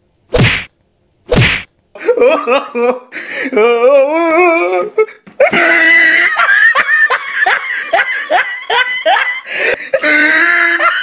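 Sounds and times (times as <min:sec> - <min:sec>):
high-pitched laughter: 0:05.4 - 0:11.0.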